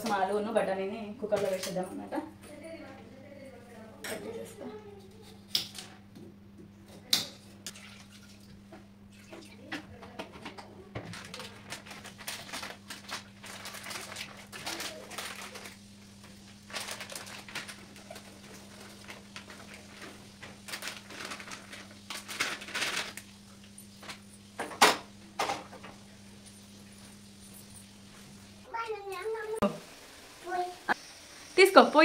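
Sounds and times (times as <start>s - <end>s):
plastic packet crinkling: 11.0s - 23.3s.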